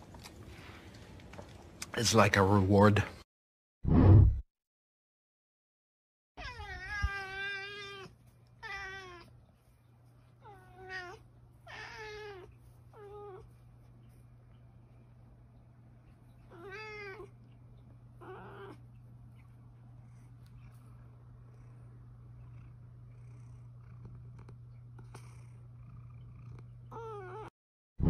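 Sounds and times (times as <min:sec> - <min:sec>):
cat meowing: 0:06.4 - 0:09.3, 0:10.4 - 0:13.5, 0:16.5 - 0:17.3, 0:18.2 - 0:18.8.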